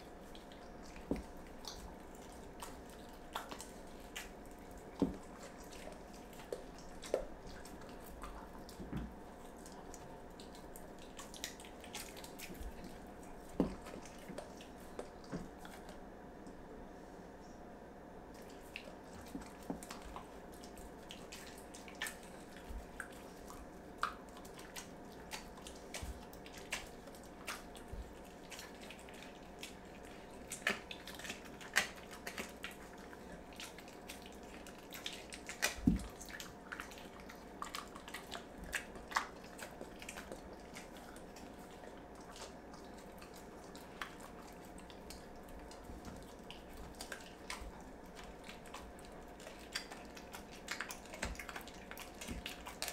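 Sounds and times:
dog licking and chewing: 0.0 - 16.0, 18.3 - 52.9.

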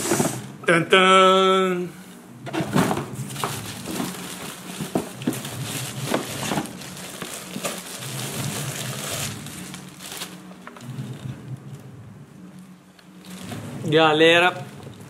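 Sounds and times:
cardboard box flaps rustling: 2.5 - 9.4
plastic bag rustling: 2.5 - 11.8, 13.2 - 15.0.

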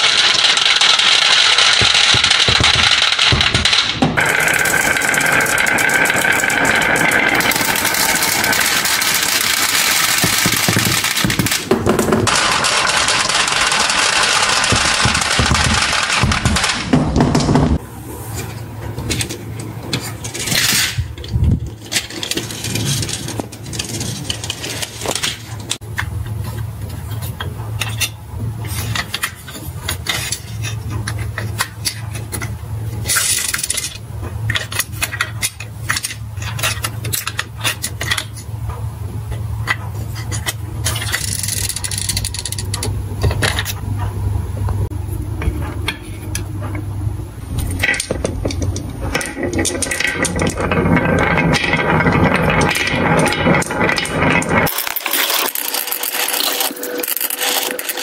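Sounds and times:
glass marbles clattering: 0.0 - 16.7, 49.1 - 58.0
steady low hum: 1.8 - 58.0.

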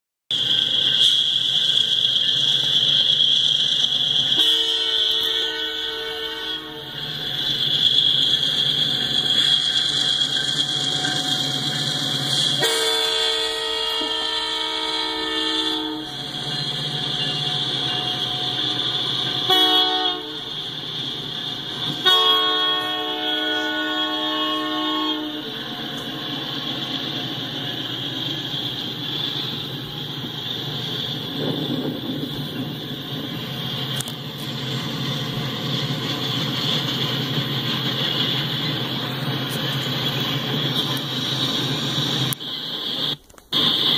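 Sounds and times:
steady high whine: 0.3 - 43.9
train cars rumbling past: 0.3 - 43.9
locomotive air horn blasts: 4.3 - 7.0, 12.3 - 16.3, 17.2 - 20.6, 21.9 - 26.1.

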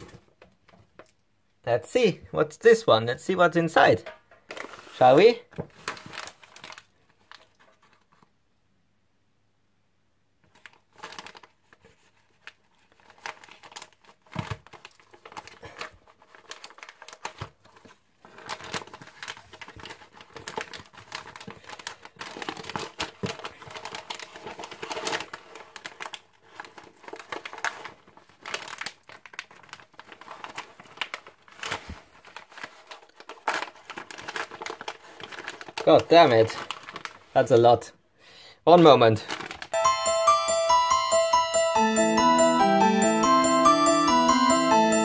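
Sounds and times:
paper envelope crinkling and tearing: 4.5 - 8.2, 10.4 - 37.5, 39.1 - 39.8.

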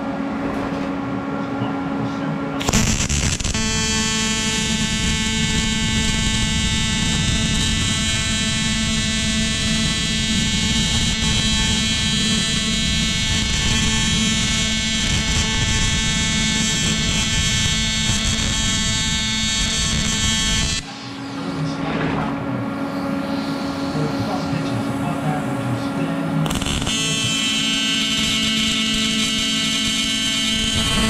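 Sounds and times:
welding arc buzzing: 2.6 - 21.0, 26.4 - 31.0.

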